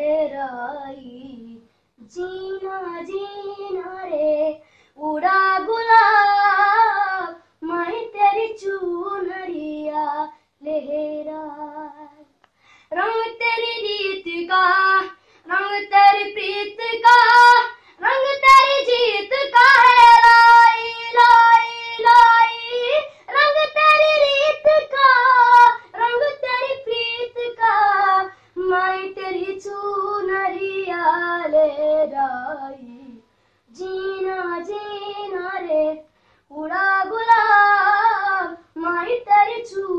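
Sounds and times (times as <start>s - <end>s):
boy singing unaccompanied: 0.0s - 12.2s, 12.9s - 39.9s.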